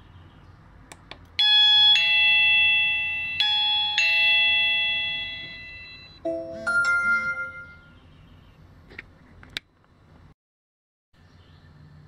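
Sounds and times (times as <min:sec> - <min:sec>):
electronic doorbell chime: 0:01.4 - 0:08.0
smartphone notification tone: 0:05.2 - 0:07.9.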